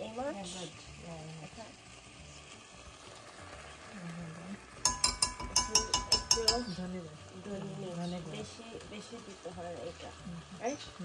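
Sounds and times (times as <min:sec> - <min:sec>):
metal spoon tapping pot rim: 0:04.8 - 0:07.0.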